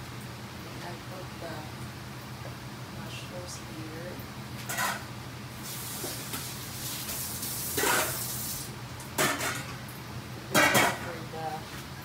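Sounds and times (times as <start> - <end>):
kitchen tap running: 5.6 - 8.8
kitchenware clattering: 9.2 - 9.8, 10.5 - 11.1.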